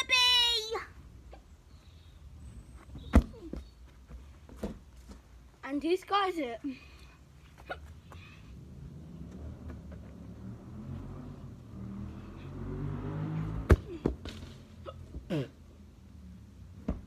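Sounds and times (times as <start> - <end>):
football kicked hard: 3.0 - 3.7, 13.6 - 14.4.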